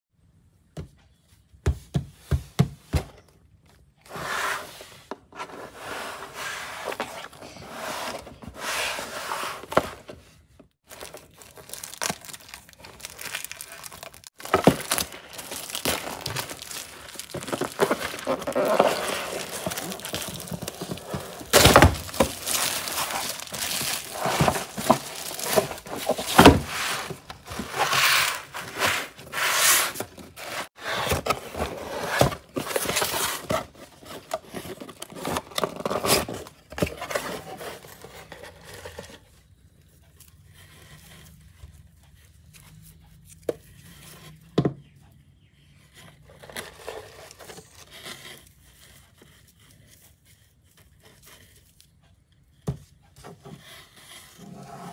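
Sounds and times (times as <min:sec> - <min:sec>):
plastic wrap crinkling and tearing: 0:10.8 - 0:29.3.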